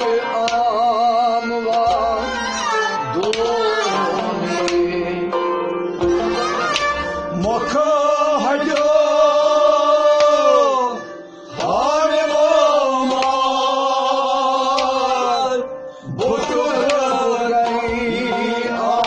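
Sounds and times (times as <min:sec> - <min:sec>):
instrumental accompaniment: 0:00.0 - 0:19.0
person singing: 0:00.0 - 0:19.0
percussion strikes: 0:03.0 - 0:13.7, 0:14.7 - 0:19.0.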